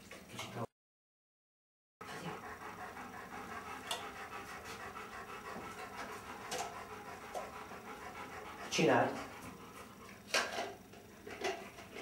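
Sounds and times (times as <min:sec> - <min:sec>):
dog panting: 0:02.0 - 0:10.5.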